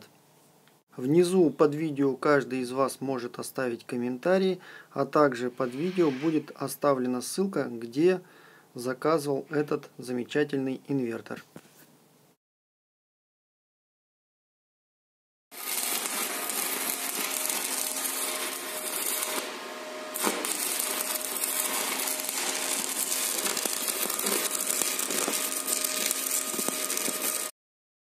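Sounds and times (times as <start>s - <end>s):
sharp welding arc crack: 15.5s - 27.5s
welding arc crackling and hissing: 15.5s - 27.5s.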